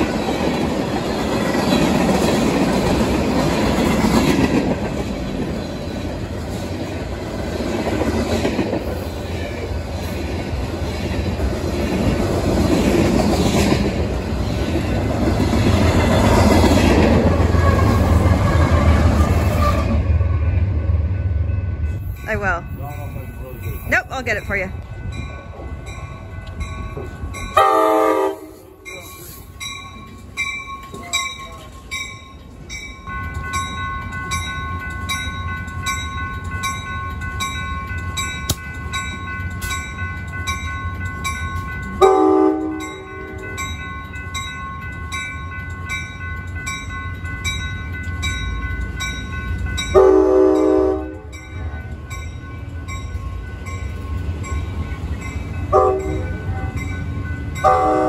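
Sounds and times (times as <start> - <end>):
train bell ringing: 0.0 - 4.6, 20.4 - 58.0
train wheels rumbling on rails: 0.0 - 58.0
train horn blasts: 27.6 - 28.8, 42.0 - 42.8, 50.0 - 51.2, 55.7 - 56.2, 57.6 - 58.0.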